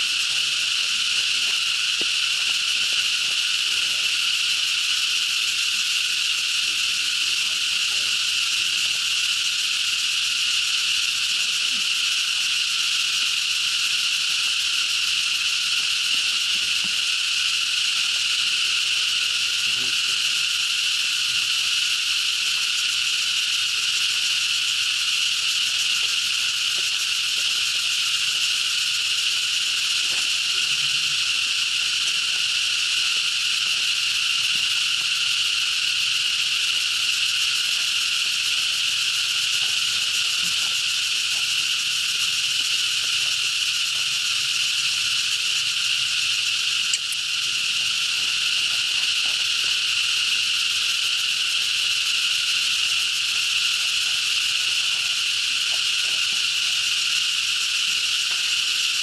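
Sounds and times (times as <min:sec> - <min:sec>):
insect chorus: 0:00.0 - 0:59.0.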